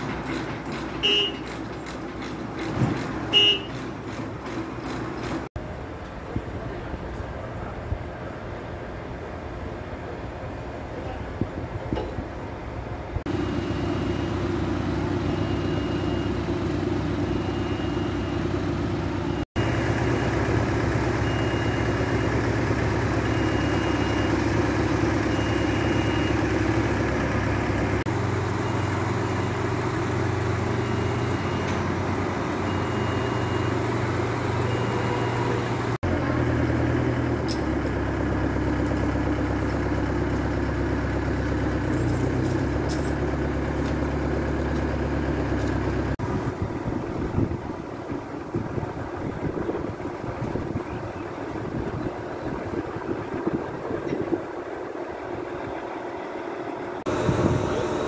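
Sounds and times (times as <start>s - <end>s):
electric crane drives humming: 0.0s - 58.0s
short high warning beep: 21.2s - 22.4s.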